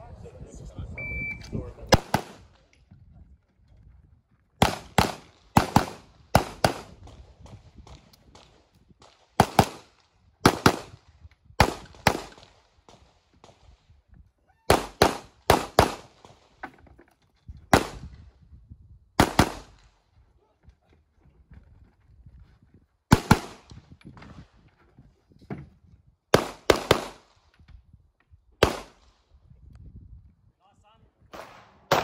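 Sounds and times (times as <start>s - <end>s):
pistol shots with echo: 1.9s - 2.5s, 4.6s - 7.2s, 28.6s - 29.0s, 31.3s - 32.0s.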